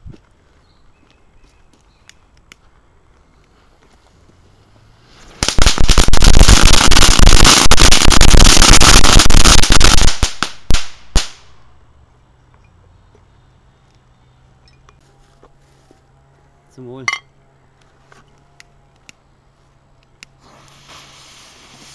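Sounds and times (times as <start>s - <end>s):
firework hiss: 4.0s - 11.6s, 20.4s - 21.9s
firework crackling bangs: 5.0s - 11.6s.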